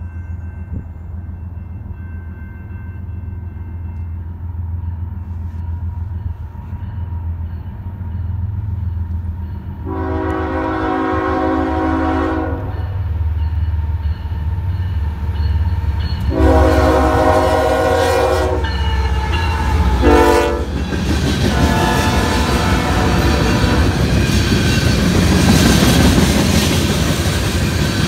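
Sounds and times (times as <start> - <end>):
train horn blasts: 9.8 - 13.0, 16.2 - 20.8, 21.4 - 24.1.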